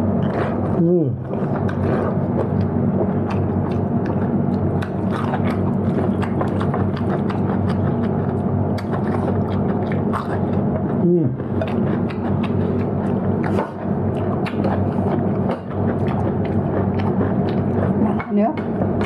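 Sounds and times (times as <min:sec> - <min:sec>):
chewing and biting chicken: 0:00.0 - 0:19.0
steady low hum: 0:00.0 - 0:19.0.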